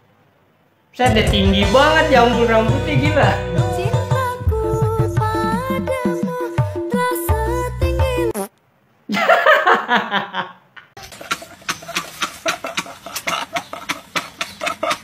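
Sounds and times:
men laughing hysterically: 9.1s - 15.0s.

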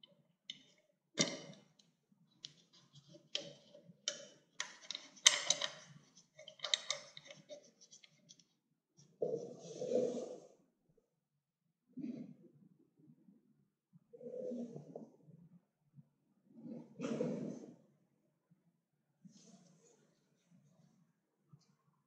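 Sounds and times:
metal parts clicking and tapping: 0.0s - 8.4s.

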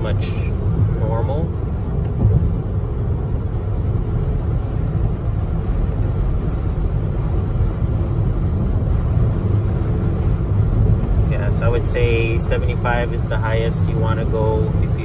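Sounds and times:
road noise rumble: 0.0s - 15.0s.

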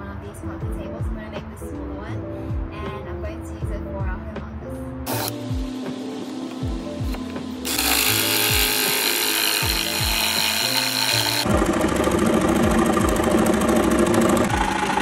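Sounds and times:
background music with steady beat: 0.0s - 11.6s
jigsaw cutting cardboard tube: 7.0s - 15.0s.

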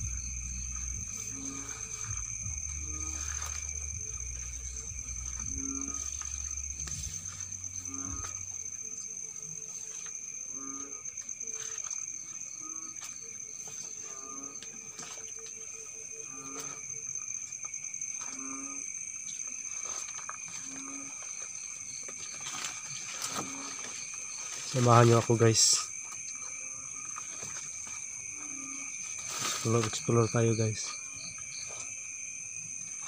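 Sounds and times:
footsteps in leaf litter: 0.0s - 8.7s, 19.5s - 25.8s, 27.1s - 30.9s
frogs croaking: 0.0s - 33.0s
insects trilling: 0.0s - 33.0s.

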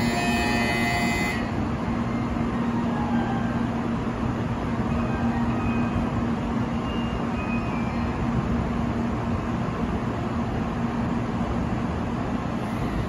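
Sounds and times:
train equipment humming: 0.0s - 13.0s.

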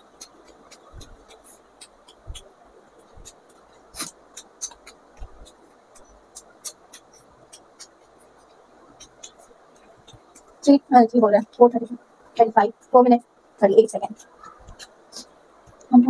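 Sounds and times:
person chewing food: 0.0s - 10.6s, 14.2s - 15.9s
wet mouth clicks and lip smacks: 0.1s - 10.6s.

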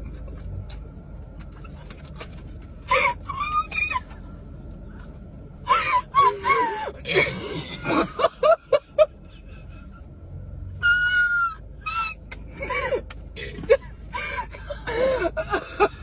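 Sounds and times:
women laughing hysterically: 2.9s - 4.2s, 5.7s - 10.0s, 13.6s - 16.0s.

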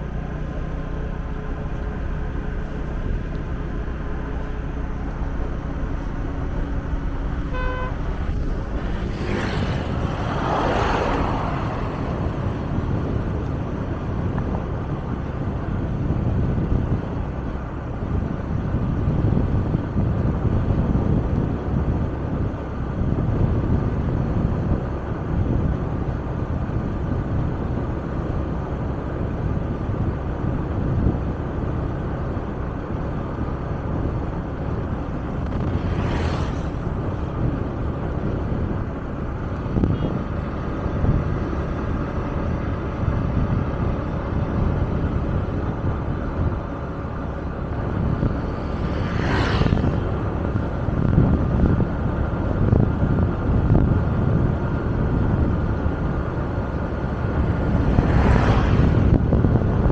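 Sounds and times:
vehicle road and wind noise: 0.0s - 59.9s
vehicle passing close by: 4.8s - 14.4s, 34.4s - 39.1s, 39.7s - 51.8s, 56.4s - 59.9s
short horn toot: 7.5s - 8.2s.

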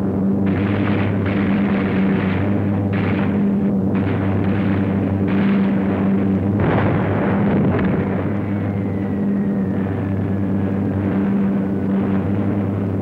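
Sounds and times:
piston engines droning: 0.0s - 13.0s
sudden blasts: 0.4s - 12.8s
faint falling whistle: 8.3s - 10.4s.

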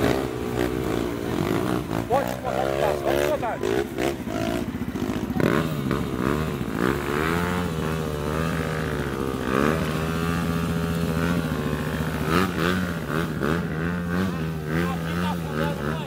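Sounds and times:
dirt bike engines revving: 0.0s - 16.0s.

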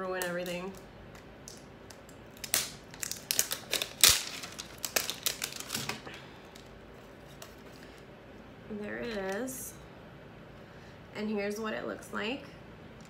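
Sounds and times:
packaging snapping: 0.2s - 6.7s
packaging crinkling and rustling: 0.2s - 8.0s.

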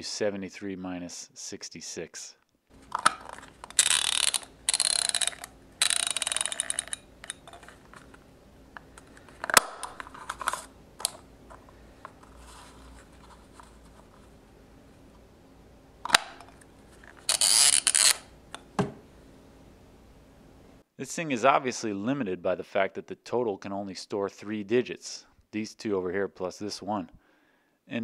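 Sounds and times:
adding machine dial clicking: 3.7s - 7.5s.

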